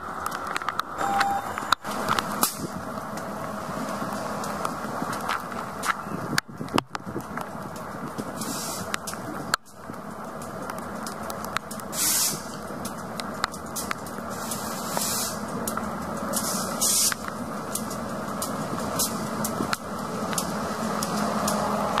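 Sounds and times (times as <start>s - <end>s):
raindrop ticks: 0.0s - 1.0s, 1.7s - 22.0s
diesel locomotive engine hum: 0.0s - 22.0s
bursts of hiss: 8.3s - 9.2s, 11.8s - 12.6s, 14.3s - 15.6s, 16.3s - 17.2s.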